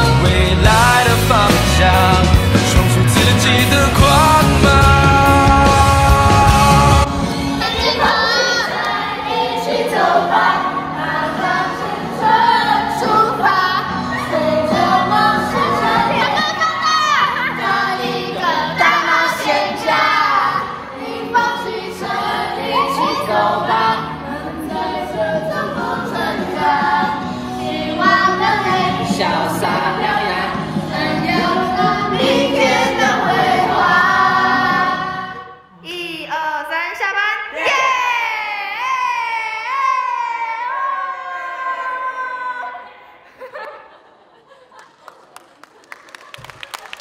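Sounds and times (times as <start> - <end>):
song with sung vocals: 0.0 - 36.6.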